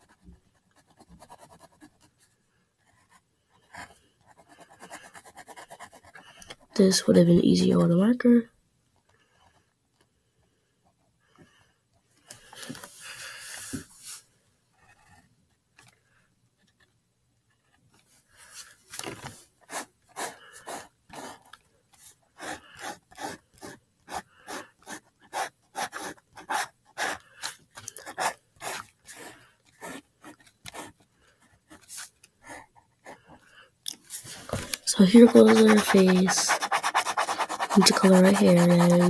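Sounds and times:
pencil scratching on paper: 0.0s - 7.1s, 19.6s - 33.4s, 34.8s - 39.0s.

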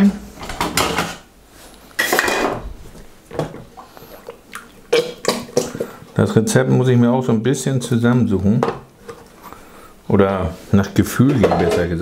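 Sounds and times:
bowl and cartons clattering on steel: 2.0s - 2.7s, 11.2s - 12.0s.

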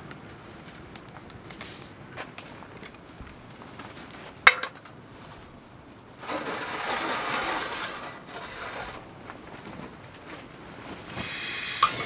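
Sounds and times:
meat hissing in a pan: 11.1s - 12.0s
cookware clinking: 11.8s - 12.0s.

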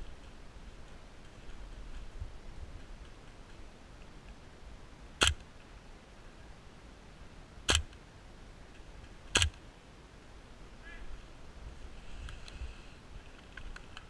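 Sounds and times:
airsoft rifle shots: 5.2s - 5.4s, 7.7s - 7.9s, 9.3s - 9.6s.

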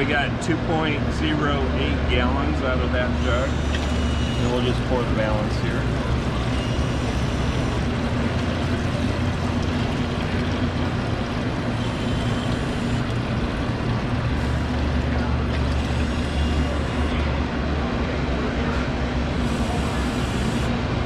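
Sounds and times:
water pump humming: 0.0s - 21.0s
liquid poured from a jug: 5.8s - 16.6s.

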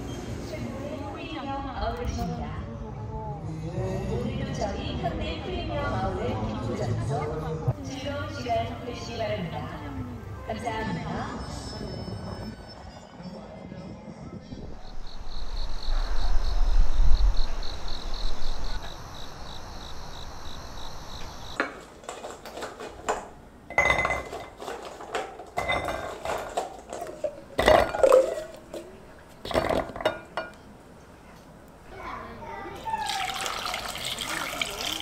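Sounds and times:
low rumble: 14.5s - 19.5s
faint pulsing high buzz: 14.6s - 21.6s.

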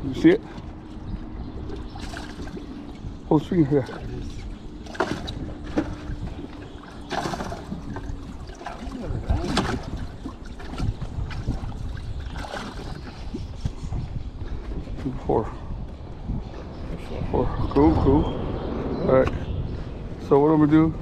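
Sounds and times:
water splashing: 1.6s - 13.4s.

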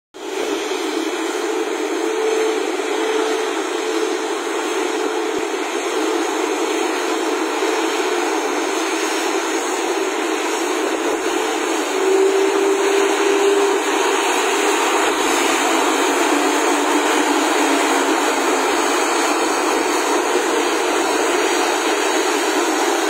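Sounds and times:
jet engines idling: 0.2s - 23.0s.

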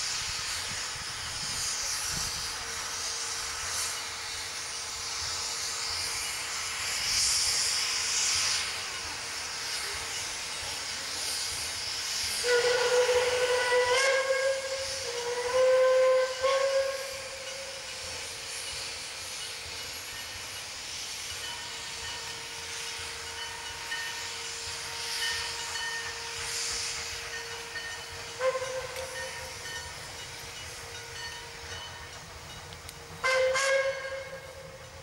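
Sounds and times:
steam locomotive hissing steam: 0.0s - 35.0s
steam whistle blasts: 11.2s - 19.3s, 21.6s - 30.1s, 33.1s - 34.9s.

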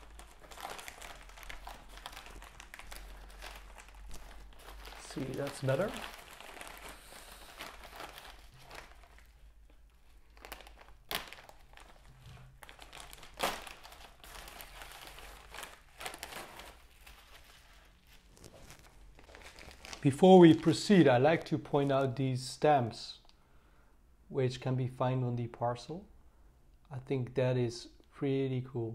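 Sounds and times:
sharp plastic crackles: 0.0s - 21.6s
plastic bag and bubble wrap crinkling: 0.0s - 22.2s.

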